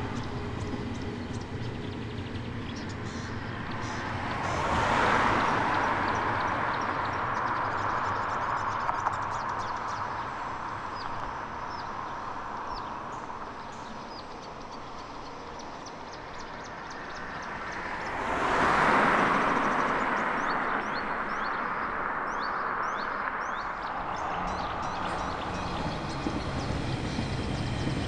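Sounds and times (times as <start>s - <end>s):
vehicle passing close by: 0.0s - 9.7s, 16.8s - 28.0s
birds chirping: 0.0s - 28.0s
traffic rumble: 0.0s - 28.0s.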